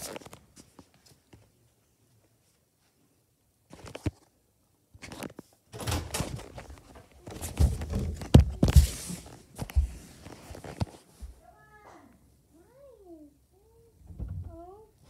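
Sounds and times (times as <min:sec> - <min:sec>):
heavy thumps: 0:05.8 - 0:10.0.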